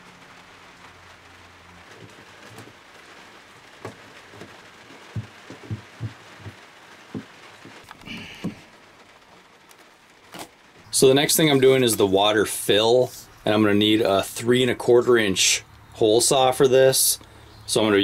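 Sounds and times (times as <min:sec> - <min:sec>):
hands tapping plastic hose: 0:02.0 - 0:02.8, 0:03.8 - 0:08.7.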